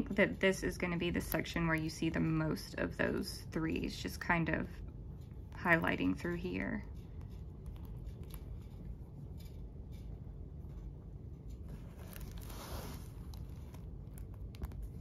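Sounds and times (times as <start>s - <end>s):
low room hum: 0.0s - 15.0s
rustling and handling noises: 0.0s - 15.0s
soft scrape: 10.8s - 13.8s.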